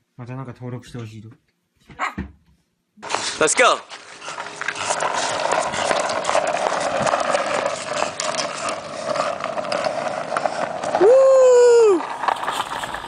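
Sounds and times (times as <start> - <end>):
skateboard rolling on asphalt: 3.0 - 13.0.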